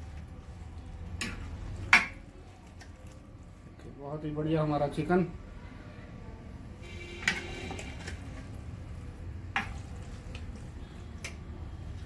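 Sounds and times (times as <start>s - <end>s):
ladle stirring thick curry: 0.0s - 3.9s, 6.8s - 12.0s.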